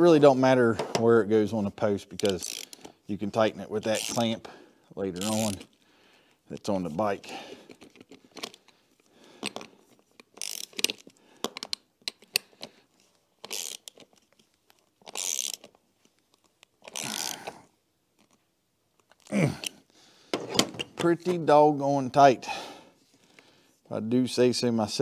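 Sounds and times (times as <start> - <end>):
metal parts clicking: 2.2 - 2.9, 5.2 - 5.7, 9.4 - 12.6, 13.4 - 14.2, 15.0 - 15.8
socket ratchet clicking: 2.2 - 2.9, 9.4 - 12.6, 13.4 - 14.1, 15.0 - 15.7.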